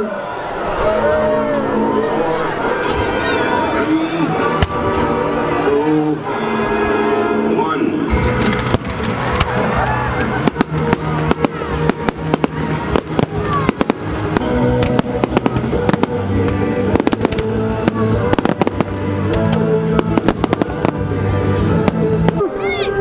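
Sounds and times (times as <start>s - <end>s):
music with long held notes: 0.8s - 23.0s
fireworks bangs and crackles: 8.1s - 22.6s.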